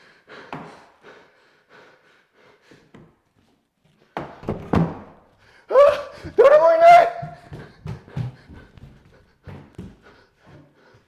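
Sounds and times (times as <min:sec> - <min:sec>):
person speaking: 0:05.7 - 0:07.7
bare feet on wooden floor: 0:06.2 - 0:11.0.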